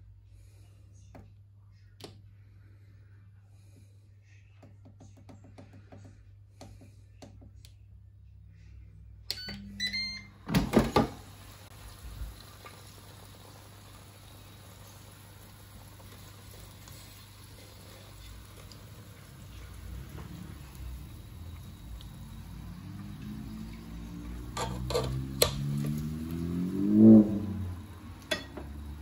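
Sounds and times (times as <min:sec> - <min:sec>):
air fryer beeping: 0:09.3 - 0:11.6, 0:19.7 - 0:29.0.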